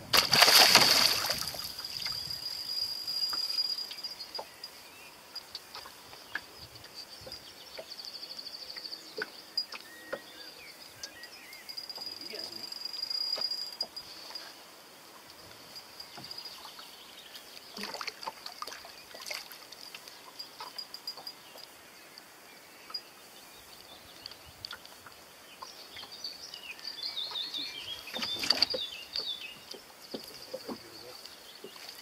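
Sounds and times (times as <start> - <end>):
fish splashing in water: 0.1 - 1.9.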